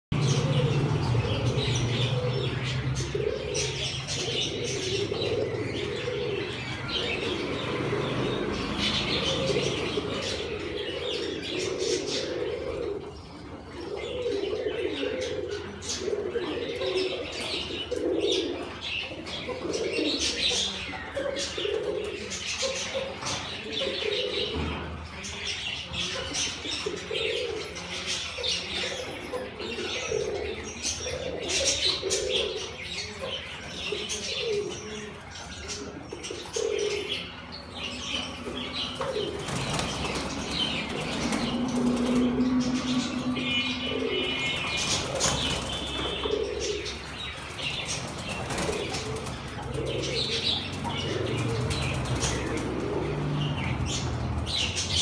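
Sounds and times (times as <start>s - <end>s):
pigeons cooing: 0.1s - 55.0s
wings flapping in cages: 37.9s - 55.0s.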